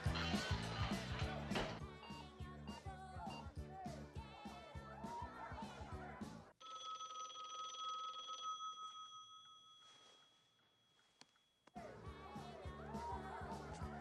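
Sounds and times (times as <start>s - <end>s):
music: 0.0s - 6.6s, 11.8s - 14.0s
telephone bell ringing: 6.6s - 10.8s.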